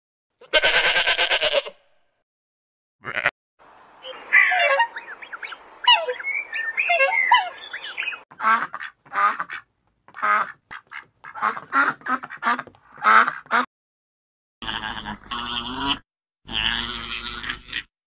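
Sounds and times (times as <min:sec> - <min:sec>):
animal calls chattering: 0:04.0 - 0:08.2.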